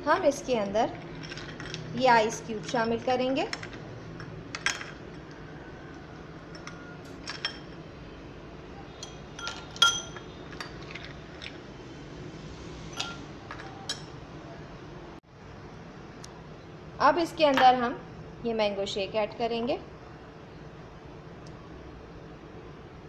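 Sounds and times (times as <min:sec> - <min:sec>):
ice cubes clinking against glass: 0:09.0 - 0:11.6.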